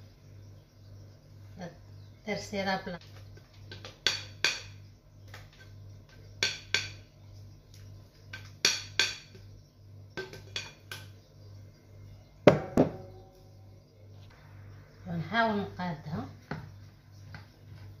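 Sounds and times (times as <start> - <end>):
faint low hum: 9.2 - 18.0.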